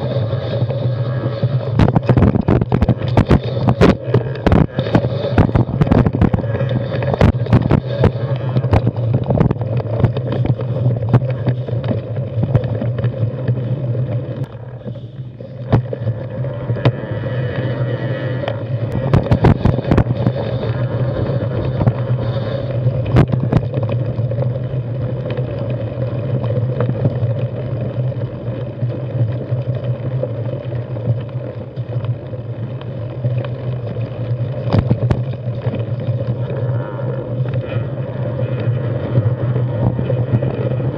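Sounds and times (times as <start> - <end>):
bike tyres rumbling on rocky trail: 0.0 - 40.9
bike knocking on rocks: 1.8 - 13.6, 33.4 - 36.3.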